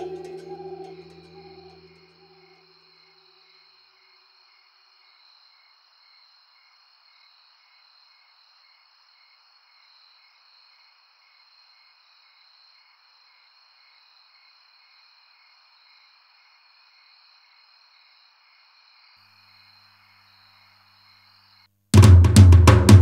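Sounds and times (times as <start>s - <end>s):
crickets chirping: 0.0s - 2.5s.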